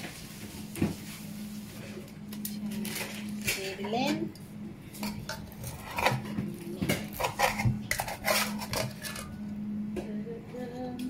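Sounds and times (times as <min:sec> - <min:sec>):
metal spoon scraping a wok: 0:07.1 - 0:09.4.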